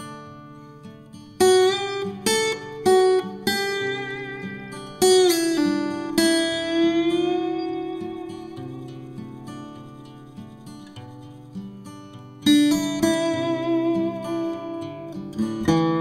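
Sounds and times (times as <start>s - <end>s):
plucked acoustic guitar notes: 0.0s - 16.0s.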